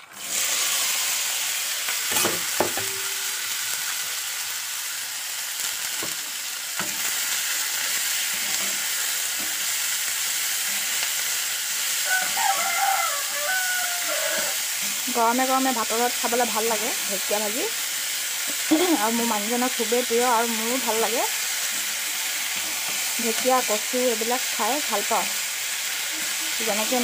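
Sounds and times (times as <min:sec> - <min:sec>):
greens sizzling in hot oil: 0:00.0 - 0:27.0
spatula clinking on wok: 0:02.1 - 0:03.4.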